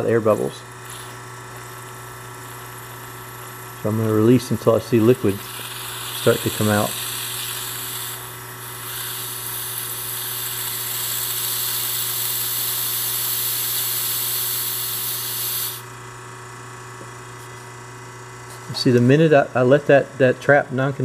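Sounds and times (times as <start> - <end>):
refrigerator humming: 0.0 - 21.0
gas hissing out of fitting: 0.4 - 15.9.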